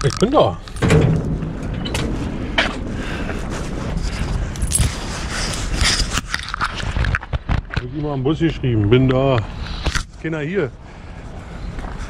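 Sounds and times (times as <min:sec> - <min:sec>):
knocks and rustles: 0:00.0 - 0:07.9
camera rubbing against fabric: 0:03.5 - 0:08.0.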